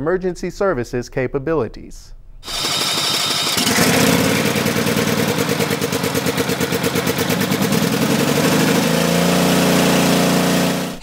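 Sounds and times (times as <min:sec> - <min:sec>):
fire truck engine running: 0:02.5 - 0:11.0.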